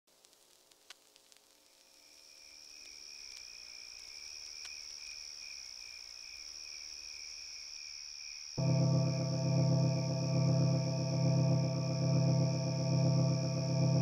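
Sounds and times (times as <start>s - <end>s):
crickets chirping: 1.7s - 14.0s
deep sustained musical tone: 8.6s - 14.0s.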